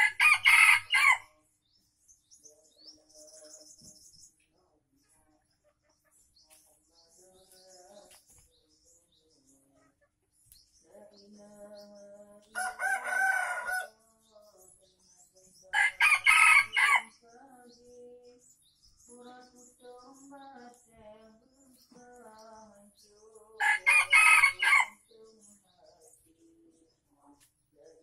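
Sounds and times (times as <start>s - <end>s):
rooster crowing: 0.0s - 1.2s, 12.6s - 13.9s, 15.8s - 17.1s, 23.6s - 25.0s
faint small birds chirping: 0.0s - 28.0s
chicken clucking: 3.8s - 8.5s, 9.5s - 10.6s.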